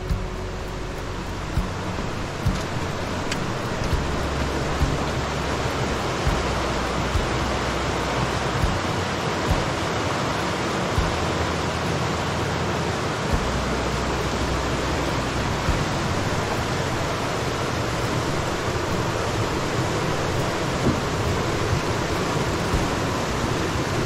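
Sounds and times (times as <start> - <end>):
soft low thumps: 0.0 - 7.8, 8.6 - 9.8, 11.0 - 11.5, 13.3 - 19.6, 20.3 - 23.4
whitewater rapids rushing: 0.0 - 24.0.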